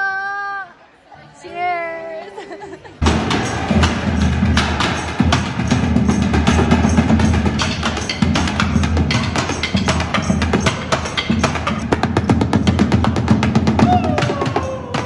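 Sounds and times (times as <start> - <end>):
snare drums played fast: 3.0 - 15.0.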